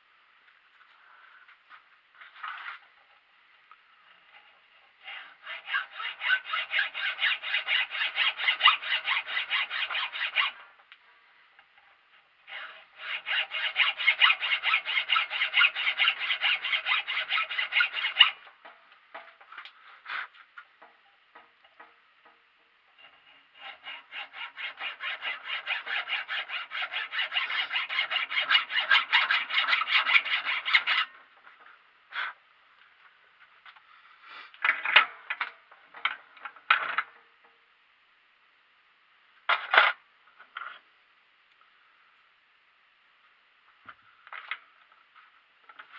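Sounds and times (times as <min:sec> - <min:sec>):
hacksaw cutting: 0:05.0 - 0:10.6, 0:12.5 - 0:18.5, 0:23.6 - 0:31.1
knocks and clatters of handling: 0:34.6 - 0:37.2.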